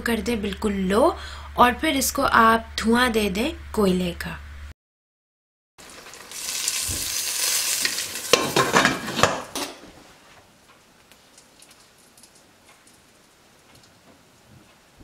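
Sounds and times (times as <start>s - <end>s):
charcoal ember sizzling: 5.8s - 9.8s, 11.0s - 14.0s.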